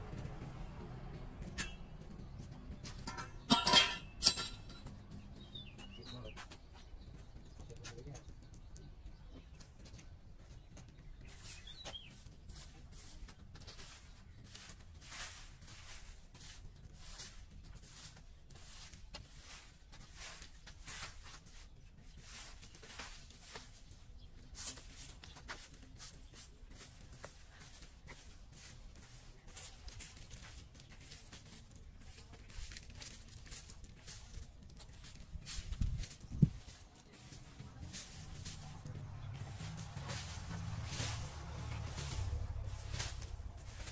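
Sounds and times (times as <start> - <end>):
broom sweeping leaves on concrete: 11.2 - 43.9.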